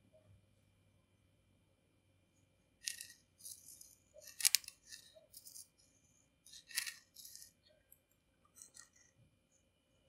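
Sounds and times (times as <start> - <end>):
pen tip scratching cookie surface: 6.5 - 7.6.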